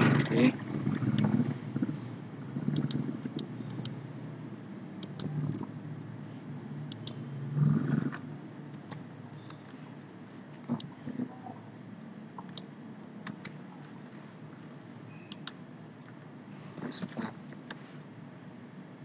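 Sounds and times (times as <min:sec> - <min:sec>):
low steady hum: 0:00.0 - 0:19.0
computer mouse clicking: 0:01.0 - 0:01.4, 0:02.4 - 0:04.0, 0:05.0 - 0:05.7, 0:06.9 - 0:07.2, 0:12.4 - 0:13.9, 0:15.3 - 0:15.6.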